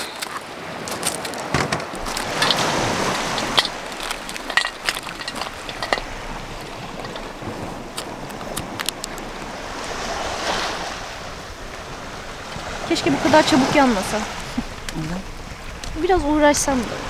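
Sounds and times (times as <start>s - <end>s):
footsteps on pebbles: 0.0s - 9.4s
surf: 0.0s - 17.0s
wind: 0.0s - 17.0s.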